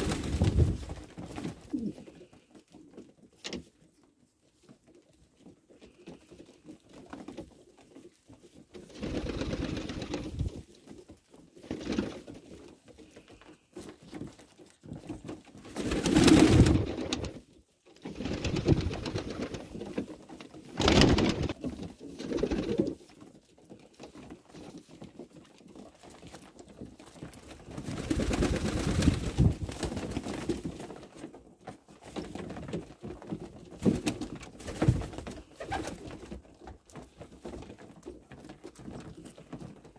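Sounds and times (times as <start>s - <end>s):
wings flapping: 0.0s - 2.4s, 8.9s - 10.6s, 11.6s - 12.4s, 15.2s - 17.4s, 18.0s - 20.1s, 20.7s - 23.0s, 27.4s - 30.9s, 33.8s - 36.4s
pigeons cooing: 1.6s - 2.3s.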